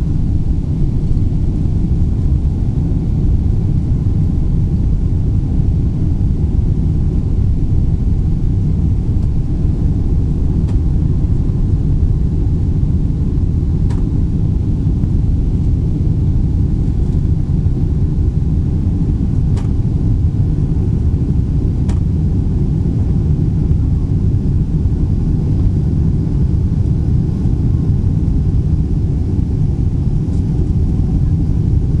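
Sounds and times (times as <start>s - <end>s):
jet engines at climb power: 0.0s - 32.0s.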